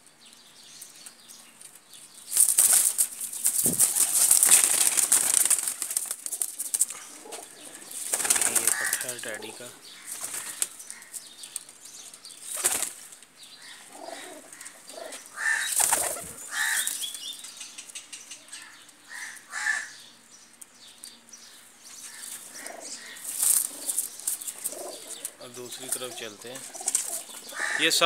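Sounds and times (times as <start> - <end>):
pigeons flapping wings: 2.3 - 9.2, 10.1 - 10.8, 12.5 - 13.1, 15.6 - 17.0, 23.2 - 27.6.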